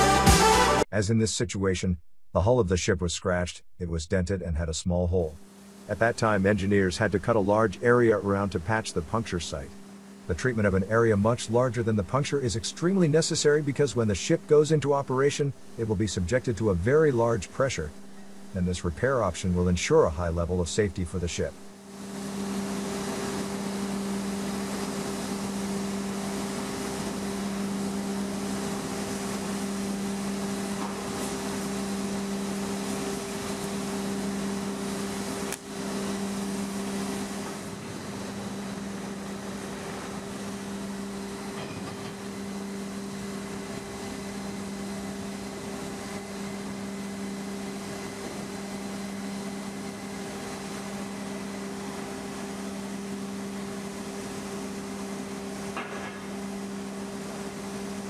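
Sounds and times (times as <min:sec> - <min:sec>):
machinery drone: 0:01.8 - 0:21.8.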